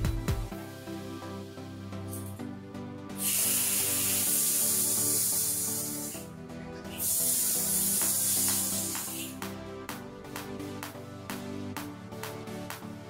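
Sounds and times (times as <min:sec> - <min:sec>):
water jet hissing against tiles: 0:03.2 - 0:06.3, 0:06.9 - 0:09.4.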